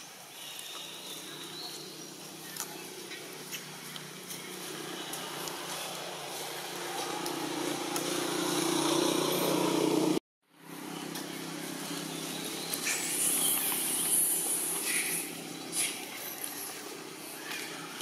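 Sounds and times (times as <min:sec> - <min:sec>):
vehicle engine hum: 0:00.0 - 0:18.0.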